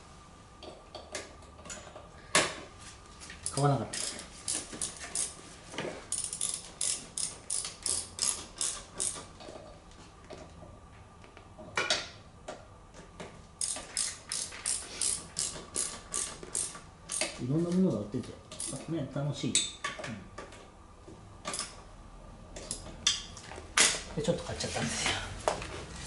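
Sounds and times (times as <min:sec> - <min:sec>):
ratchet wrench clicking: 0:03.4 - 0:05.4, 0:06.1 - 0:09.2, 0:13.6 - 0:17.4, 0:18.6 - 0:18.8.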